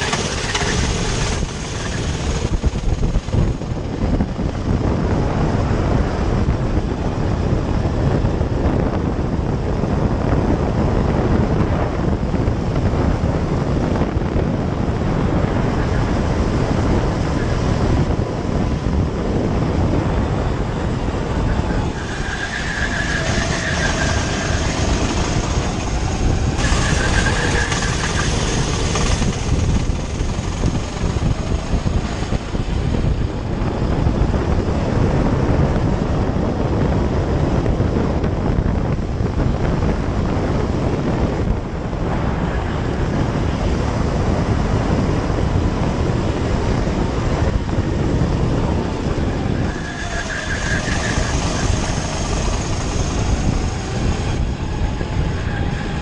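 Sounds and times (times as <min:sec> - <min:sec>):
go-kart engine running hard: 0:00.0 - 0:56.0
wind buffeting microphone: 0:00.0 - 0:56.0
tyre squeals: 0:21.4 - 0:30.2, 0:49.2 - 0:56.0.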